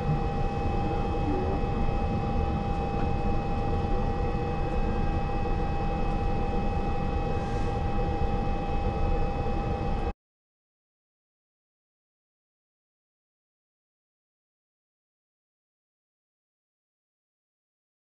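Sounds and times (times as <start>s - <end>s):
steady whine: 0.0s - 10.2s.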